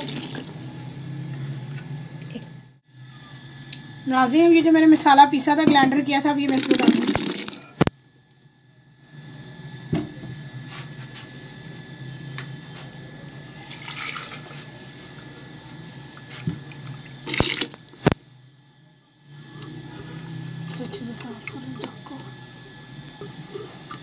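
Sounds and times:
paste pouring and splashing: 6.5s - 7.8s, 17.3s - 17.8s.

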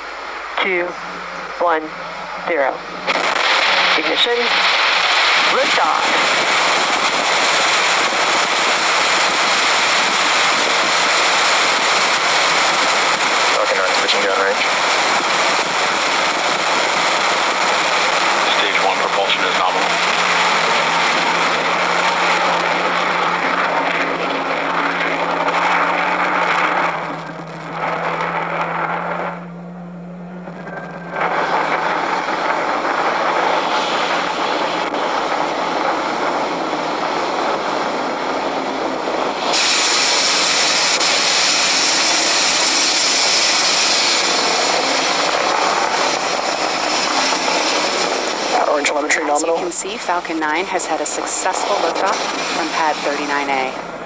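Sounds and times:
rocket engines roaring: 0.0s - 54.0s.

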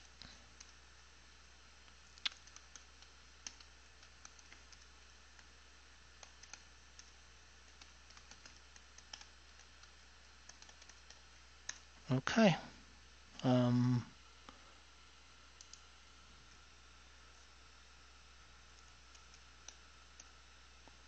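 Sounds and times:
typing on keyboard: 2.2s - 5.5s, 6.2s - 11.8s.

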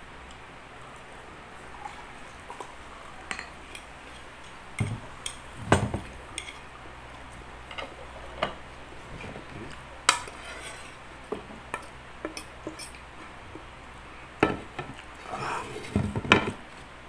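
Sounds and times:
cutlery clinking on plates: 3.3s - 3.9s.

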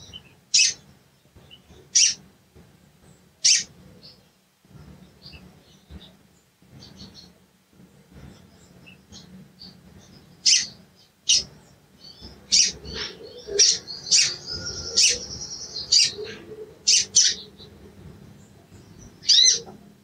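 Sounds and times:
high bird trill: 12.2s - 17.7s, 19.2s - 19.8s.

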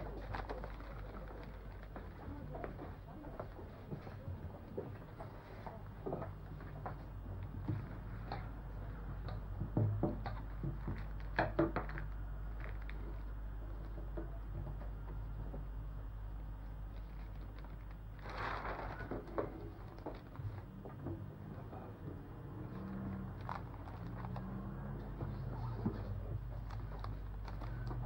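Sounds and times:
steady low hum: 0.0s - 28.0s
newspaper crinkling: 16.9s - 20.1s
newspaper page turning: 17.6s - 19.4s.

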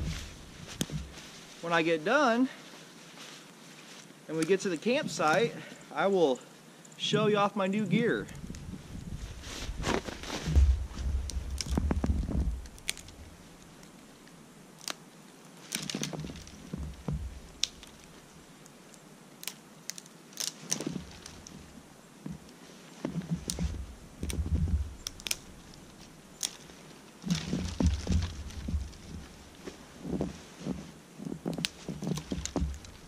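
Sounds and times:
low muffled thumps: 0.0s - 1.2s, 8.4s - 13.4s, 16.7s - 17.5s, 23.1s - 25.7s, 27.3s - 30.8s
twigs snapping: 0.0s - 1.6s, 8.4s - 30.4s, 31.2s - 33.0s
brush rustling: 0.0s - 6.6s, 7.2s - 33.0s.

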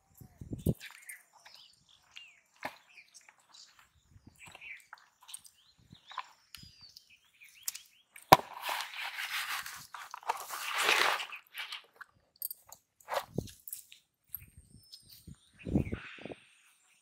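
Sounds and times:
fish scraping and slapping in basin: 8.4s - 11.9s.

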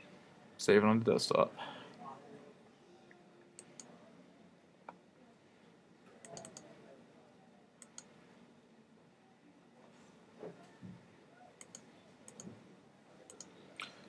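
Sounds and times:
computer mouse clicks: 3.6s - 3.9s, 6.2s - 6.7s, 7.8s - 8.1s, 11.6s - 12.6s, 13.3s - 13.6s.

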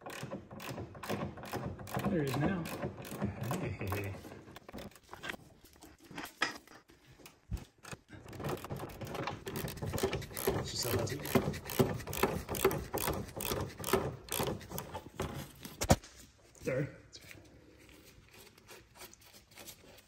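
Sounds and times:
ratchet clicking rapidly: 8.5s - 15.0s.

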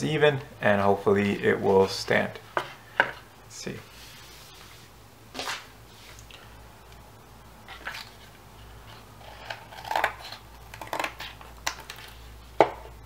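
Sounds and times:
scissors cutting cardboard: 8.9s - 12.1s.

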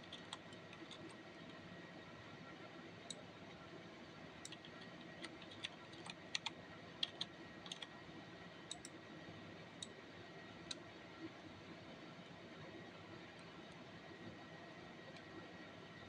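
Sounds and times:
computer mouse clicks: 0.0s - 1.6s, 4.4s - 7.9s, 8.7s - 9.0s
faint room tone hiss: 0.0s - 16.0s.

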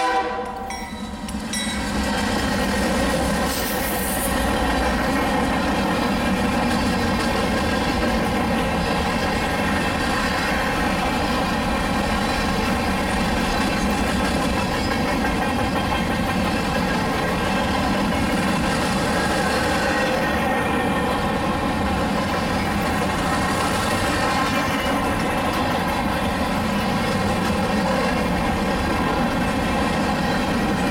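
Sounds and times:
freight train rumbling past: 0.0s - 30.9s.

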